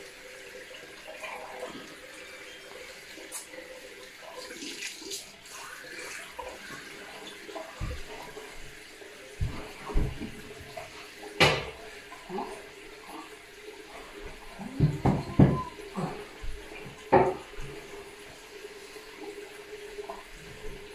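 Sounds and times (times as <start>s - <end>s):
faint running water: 0.0s - 20.9s
dull knocks: 14.7s - 15.7s.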